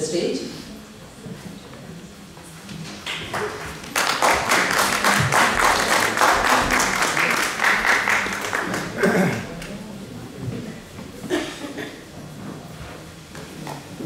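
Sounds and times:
audience applauding: 3.0s - 9.8s.

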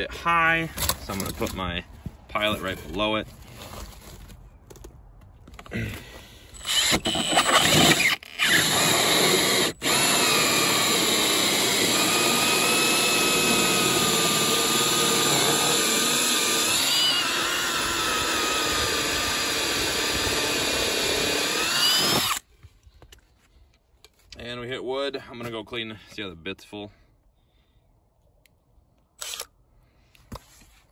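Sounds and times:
cordless drill with hole saw whining: 6.4s - 22.5s, 29.2s - 29.6s.

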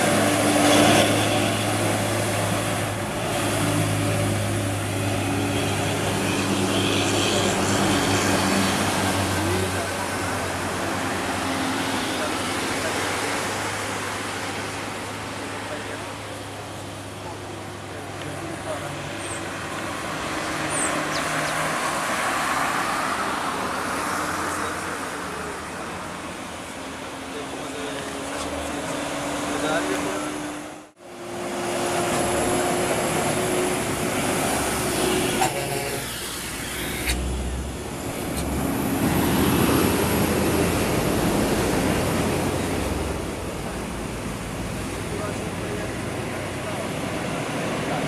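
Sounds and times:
diesel truck engine: 0.0s - 48.0s
truck tyre noise: 0.0s - 48.0s
truck engine working uphill: 30.0s - 48.0s.

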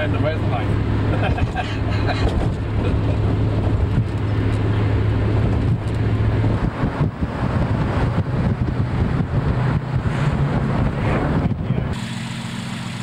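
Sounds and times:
car engine hum: 0.0s - 13.0s
road noise inside car: 0.0s - 13.0s
wind on microphone: 5.0s - 12.0s.

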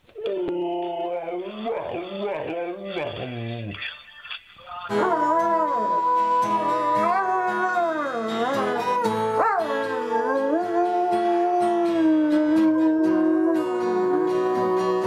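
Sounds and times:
dog howling: 0.2s - 3.7s, 4.9s - 15.0s
strummed acoustic guitar: 1.4s - 12.1s.

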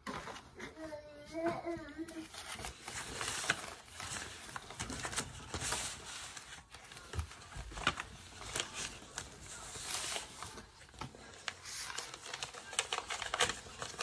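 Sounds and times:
paper banknotes rustling: 2.2s - 14.0s.

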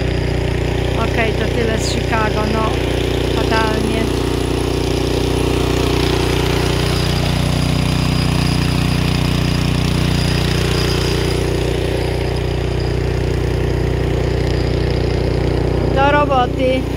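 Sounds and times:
snowblower engine running: 0.0s - 16.9s.

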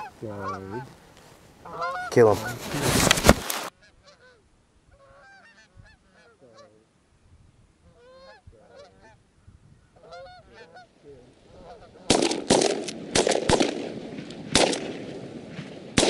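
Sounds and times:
geese honking: 0.0s - 2.8s, 3.6s - 6.9s, 7.8s - 12.6s.

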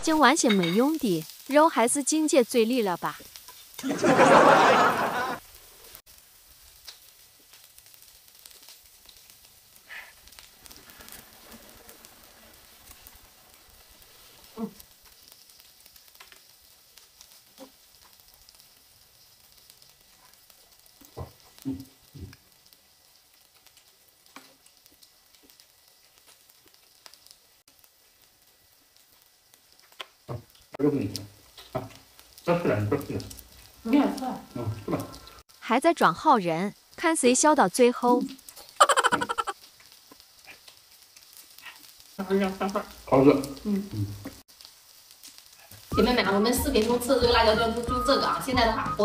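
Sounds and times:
loud hiss: 0.0s - 17.4s
food sizzling on griddle: 0.0s - 49.0s
soft eating sounds: 40.1s - 42.1s.

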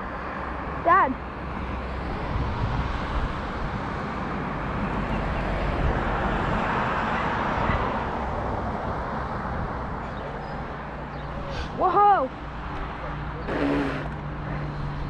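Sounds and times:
wind on microphone: 2.0s - 4.0s.

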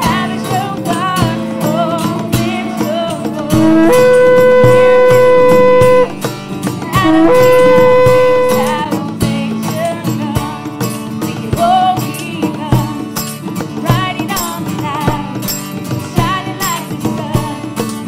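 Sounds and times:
music with steady beat: 1.2s - 9.4s
shofar blasts: 3.5s - 6.3s, 7.0s - 8.8s.

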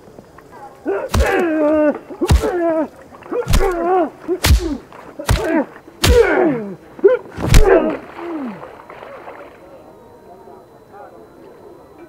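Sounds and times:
man grunting: 0.9s - 8.6s
punch impacts: 1.1s - 1.6s, 2.2s - 2.6s, 3.5s - 6.4s, 7.4s - 8.0s.

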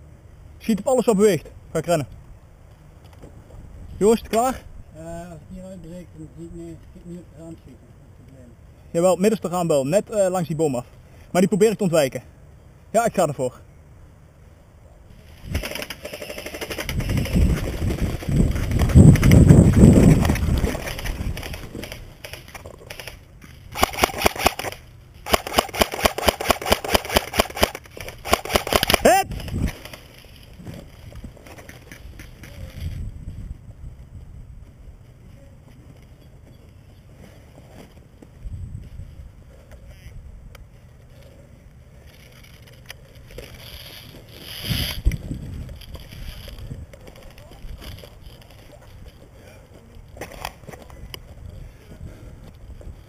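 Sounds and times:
airsoft gun rapid shots: 23.7s - 29.2s.

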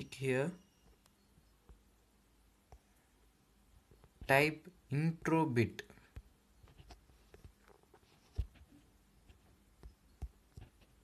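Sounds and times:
fingers tapping touchscreen: 6.1s - 11.0s.

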